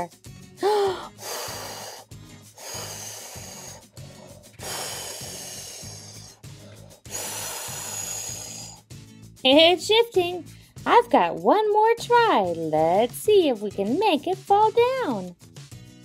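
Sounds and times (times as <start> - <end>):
soft background music: 0.0 - 16.0
person blowing hard breaths: 0.6 - 9.1.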